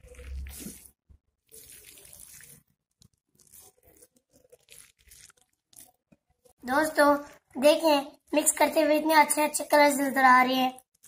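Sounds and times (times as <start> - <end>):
hands squishing wet meat mixture: 0.0 - 7.5.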